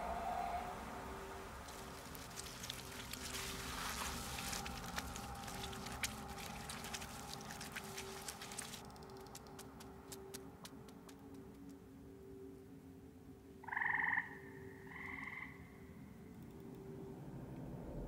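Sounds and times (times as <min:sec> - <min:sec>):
steady low tone: 0:00.0 - 0:13.6, 0:15.6 - 0:18.0
soft squelchy rustling: 0:01.6 - 0:11.7.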